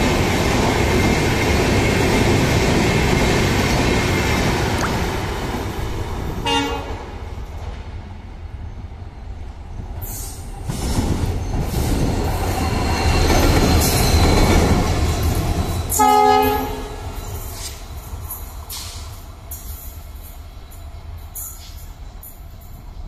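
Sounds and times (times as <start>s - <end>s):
diesel locomotive passing: 0.0s - 23.0s
locomotive horn blasts: 6.4s - 7.0s, 16.0s - 17.0s.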